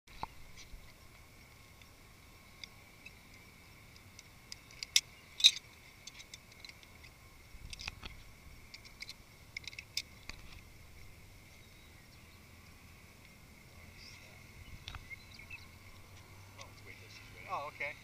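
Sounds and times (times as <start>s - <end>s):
faint high-pitched hum: 0.1s - 18.0s
clicks and taps of gear: 2.6s - 11.1s.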